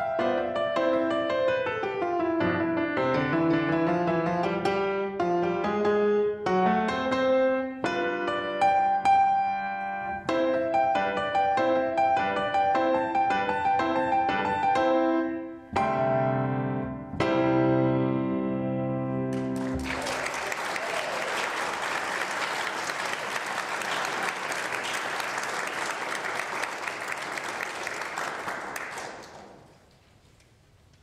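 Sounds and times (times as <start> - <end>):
grand piano chords: 0.0 - 20.0
audience applause: 19.4 - 29.8.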